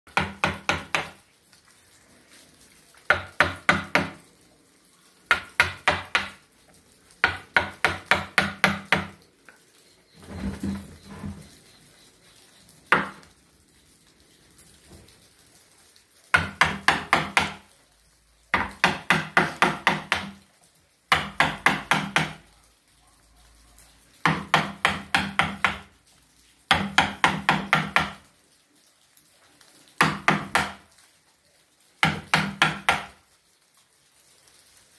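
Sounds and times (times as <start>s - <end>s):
mallet striking chisel into wood: 0.1s - 1.2s, 3.1s - 4.2s, 5.3s - 6.4s, 7.2s - 9.1s, 16.4s - 17.6s, 18.6s - 20.4s, 21.1s - 22.4s, 24.2s - 25.8s, 26.7s - 28.2s, 30.0s - 30.8s, 32.0s - 33.2s.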